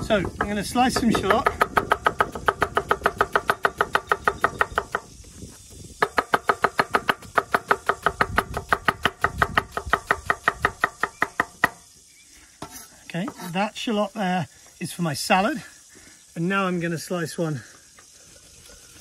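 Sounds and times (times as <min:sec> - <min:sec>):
knife chopping on wooden board: 0:00.2 - 0:05.1, 0:06.0 - 0:11.8.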